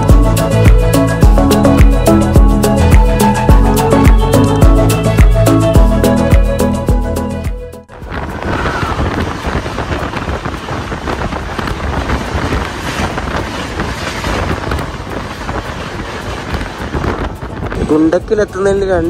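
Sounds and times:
train rushing past: 0:07.9 - 0:18.6
wind buffeting microphone: 0:07.9 - 0:19.0.

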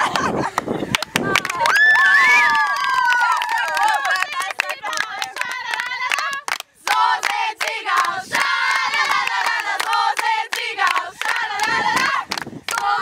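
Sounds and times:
hand claps and slaps: 0:00.1 - 0:01.8, 0:03.1 - 0:08.5
girls chanting: 0:03.6 - 0:13.0.

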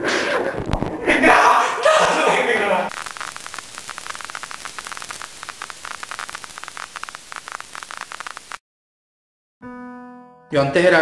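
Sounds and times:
tv static hiss: 0:02.6 - 0:08.6.

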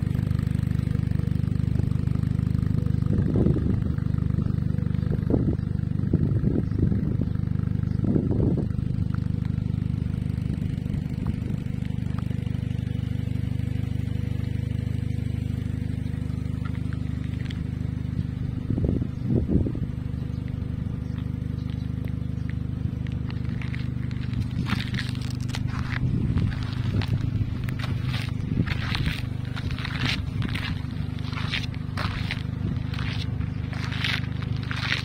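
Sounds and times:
engine idling: 0:00.0 - 0:35.0
low bumps: 0:16.5 - 0:35.0.

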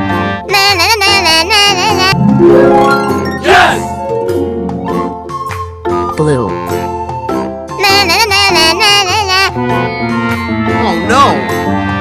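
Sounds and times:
cheerful children's music: 0:00.0 - 0:12.0
high wavering voice-like melody: 0:00.5 - 0:04.1.

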